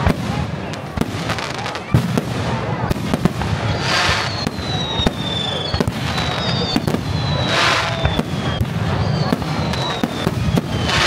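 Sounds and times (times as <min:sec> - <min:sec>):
falling high whistles: 0:03.7 - 0:11.0.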